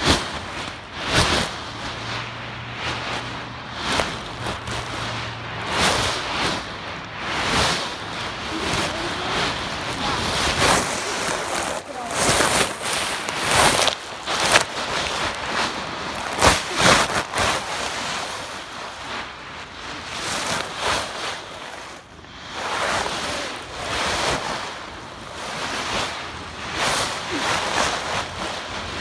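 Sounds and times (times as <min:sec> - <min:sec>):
dry leaves rustling and crunching: 0:00.0 - 0:29.0.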